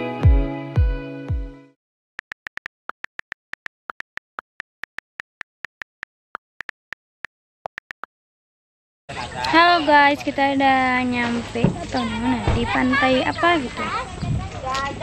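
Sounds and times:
typing ticks: 2.2s - 8.1s.

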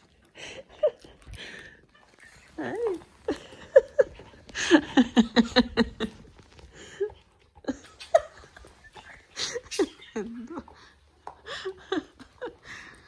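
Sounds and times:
person laughing: 2.2s - 10.8s.

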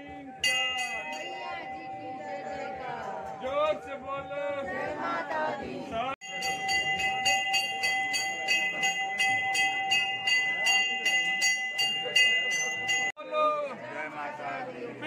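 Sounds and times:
temple bell rung rapidly: 0.3s - 4.8s, 6.2s - 13.2s.

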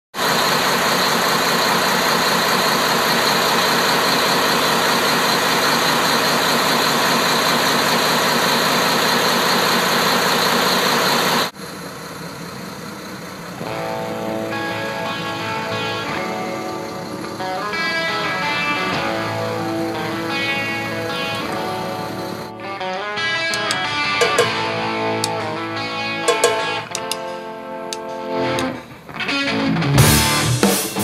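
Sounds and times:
marine diesel engine idling: 0.1s - 22.5s
strummed guitar music: 13.6s - 31.0s.

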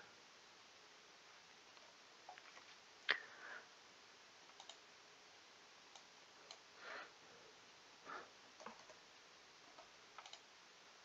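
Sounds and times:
faint computer mouse clicks: 4.5s - 4.8s, 9.7s - 10.5s.

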